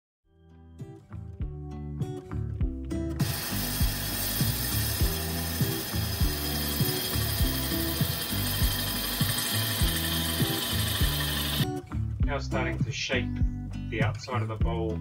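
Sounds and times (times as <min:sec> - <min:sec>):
background music with beat: 0:00.8 - 0:15.0
gouge cutting wood on lathe: 0:03.2 - 0:11.6.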